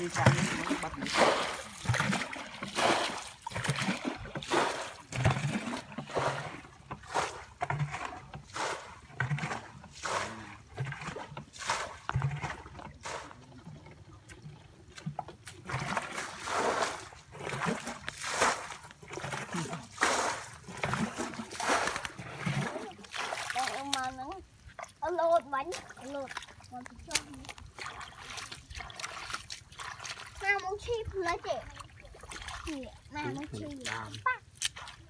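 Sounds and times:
bucket scooping and splashing water: 0:00.0 - 0:35.0.

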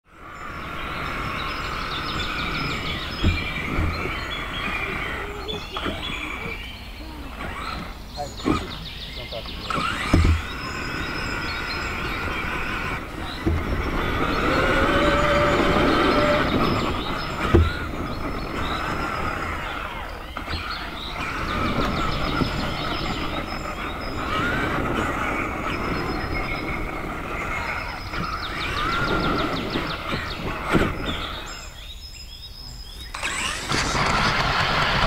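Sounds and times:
electric motor whining: 0:00.1 - 0:31.8, 0:33.0 - 0:35.0
sharp knocks: 0:09.7 - 0:10.6, 0:16.4 - 0:17.9.

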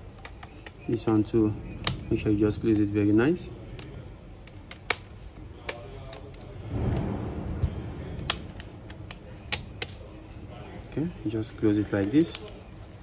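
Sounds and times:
plastic clips snapping: 0:03.7 - 0:06.5, 0:12.0 - 0:12.7.

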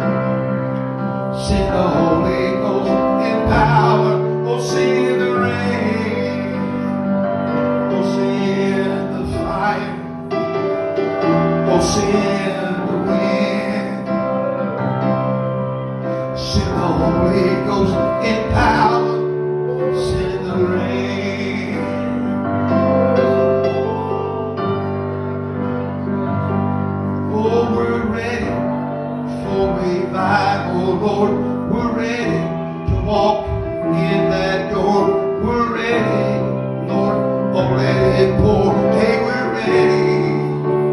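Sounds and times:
electric keyboard chords: 0:00.0 - 0:40.9
man and woman singing: 0:16.4 - 0:19.2, 0:29.4 - 0:40.5.

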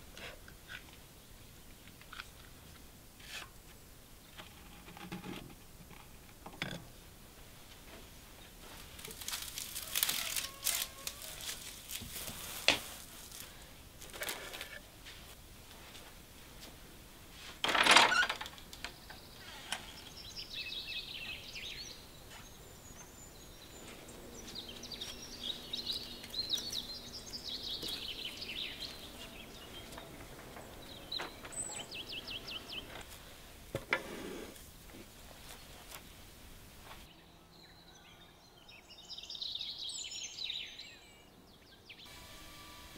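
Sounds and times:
wooden door unbolted and opened: 0:17.6 - 0:18.6
small birds chirping: 0:18.6 - 0:33.6, 0:36.9 - 0:42.2.

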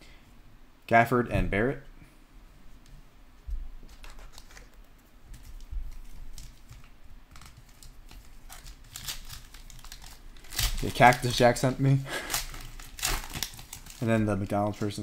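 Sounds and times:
card pack rustling: 0:03.8 - 0:15.0.

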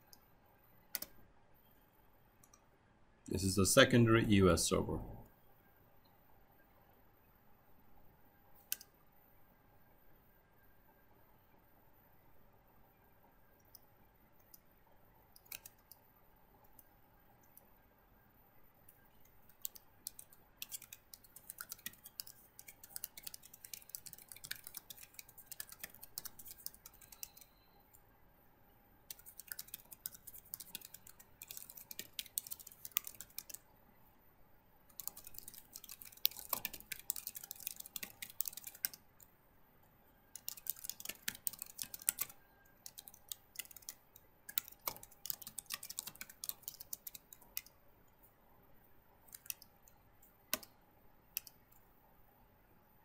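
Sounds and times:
typing on computer keyboard: 0:00.9 - 0:01.2, 0:08.6 - 0:08.9, 0:15.3 - 0:16.0, 0:18.9 - 0:27.7, 0:29.1 - 0:33.6, 0:34.9 - 0:39.3, 0:40.3 - 0:47.8, 0:49.3 - 0:50.8, 0:51.4 - 0:51.6.

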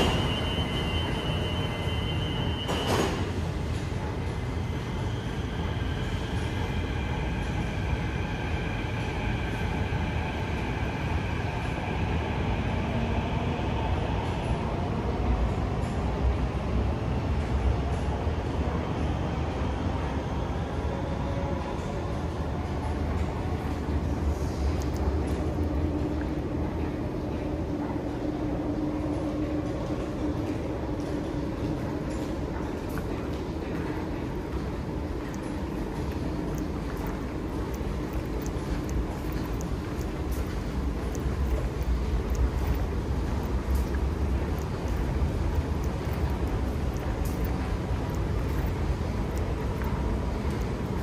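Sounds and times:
faint high whine: 0:00.0 - 0:03.3
train wheels rumbling on rail: 0:00.0 - 0:51.0.

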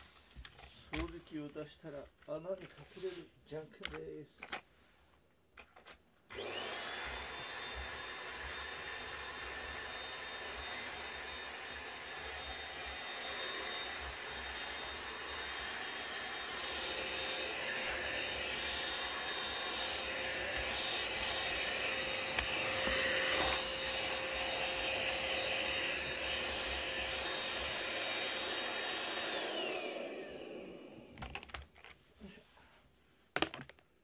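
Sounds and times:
vacuum motor winding down: 0:06.3 - 0:31.4
vacuum cleaner motor whine: 0:06.3 - 0:31.6.

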